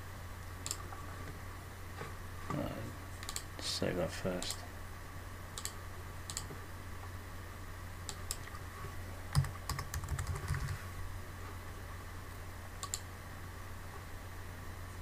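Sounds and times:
steady low hum: 0.0s - 15.0s
keyboard typing: 5.6s - 6.5s, 9.3s - 10.8s.

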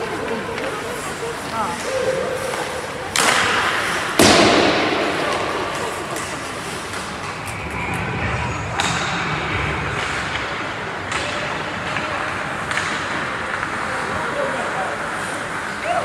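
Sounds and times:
rink noise: 3.8s - 13.4s.

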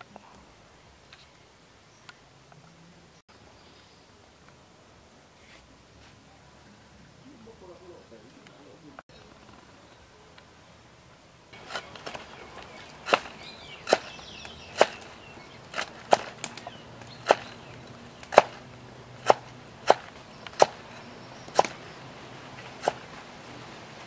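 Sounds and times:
knife chopping on wooden board: 11.6s - 18.6s, 19.2s - 21.8s, 22.6s - 23.1s.

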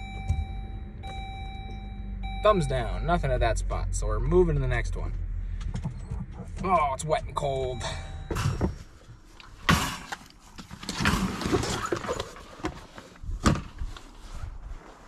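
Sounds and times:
rustling and shuffling: 8.4s - 15.0s.

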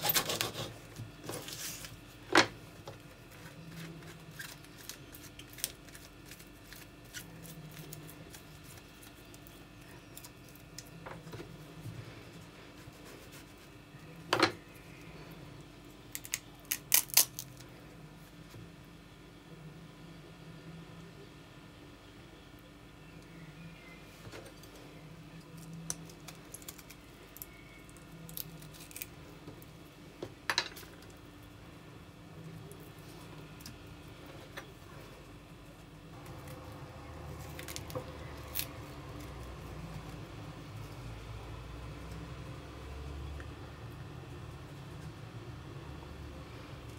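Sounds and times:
faint steady hum: 0.0s - 46.9s
artichoke leaves snapping: 16.1s - 17.6s, 28.3s - 29.1s, 37.4s - 40.1s.

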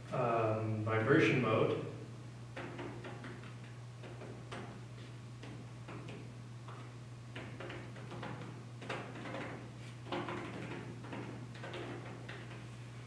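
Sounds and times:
steady low hum: 0.0s - 13.0s
fingers tapping plastic canopy: 2.6s - 4.8s, 5.4s - 12.6s.

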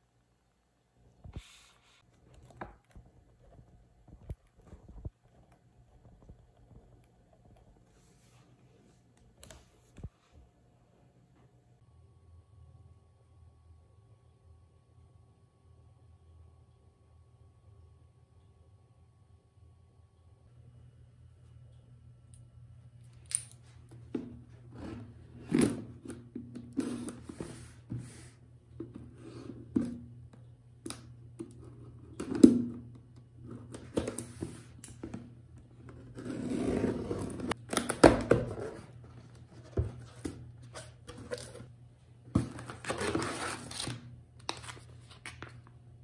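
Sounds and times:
faint low hum: 0.0s - 46.0s
objects being handled: 37.2s - 45.7s.

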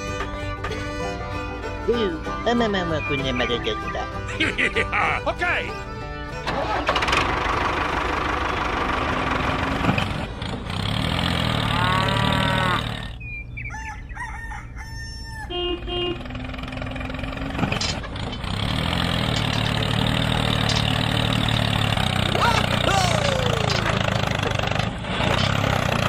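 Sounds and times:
tractor engine running: 0.0s - 13.7s, 15.5s - 26.0s
rooster crowing: 13.6s - 15.7s.

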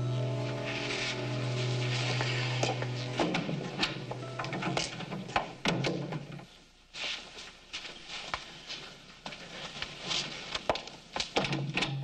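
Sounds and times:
footsteps on floor: 0.5s - 4.2s, 7.0s - 10.9s.

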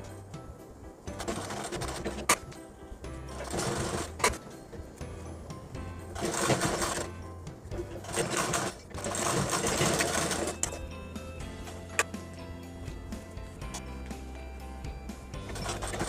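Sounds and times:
sewing machine stitching: 1.1s - 2.4s, 3.3s - 4.4s, 6.1s - 7.2s, 7.8s - 10.8s, 15.4s - 16.0s.

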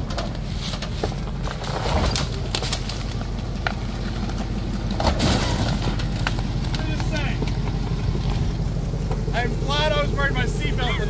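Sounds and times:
tyres knocking over rock: 0.0s - 8.5s
suv engine running low: 0.0s - 11.0s.

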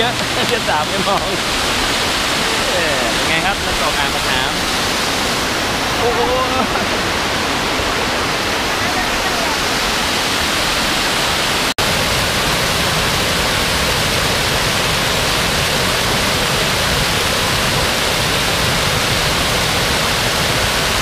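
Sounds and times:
waterfall pouring over rock: 0.0s - 21.0s.

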